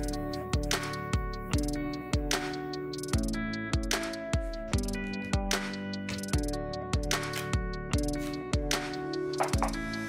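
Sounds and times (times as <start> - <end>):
plucked string music: 4.6 - 10.0.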